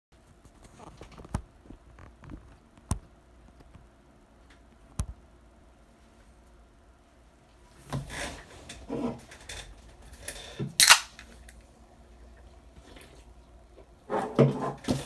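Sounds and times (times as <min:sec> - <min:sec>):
can opening crack and fizz: 0:10.8 - 0:11.6.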